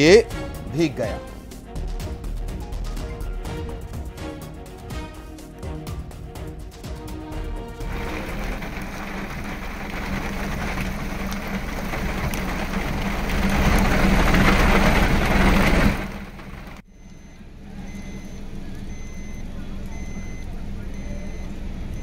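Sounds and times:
heavy rain pouring: 0.0 - 16.8
low hum: 0.2 - 22.0.

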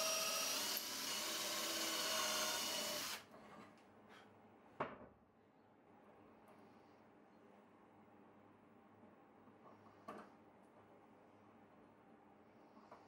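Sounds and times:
cordless drill motor whine: 0.0 - 3.2.

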